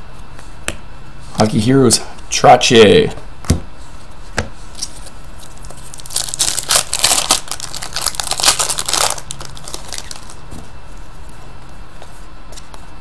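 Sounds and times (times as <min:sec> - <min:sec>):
cards rustling: 0:04.8 - 0:10.4
plastic wrapper crinkling: 0:04.9 - 0:10.4.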